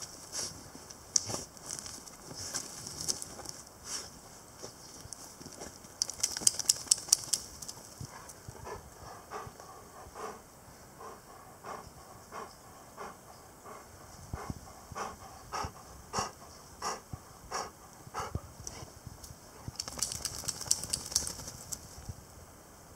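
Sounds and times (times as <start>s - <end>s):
dog panting: 8.1s - 18.9s
dog sniffing: 11.0s - 18.9s.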